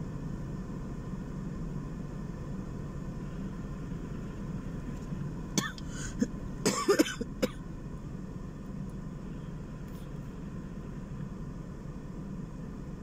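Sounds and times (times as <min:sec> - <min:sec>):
car cabin hum: 0:00.0 - 0:13.0
woman coughing: 0:05.6 - 0:07.6.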